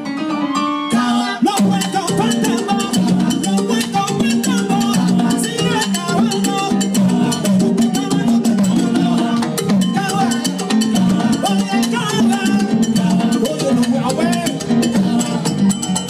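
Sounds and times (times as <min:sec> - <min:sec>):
conga drums: 0:00.0 - 0:16.0
live salsa band: 0:00.0 - 0:16.0.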